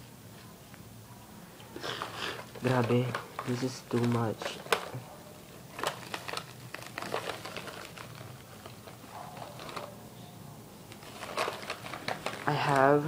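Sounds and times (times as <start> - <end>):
plastic makeup cases clicking: 2.0 - 5.0, 5.7 - 9.9.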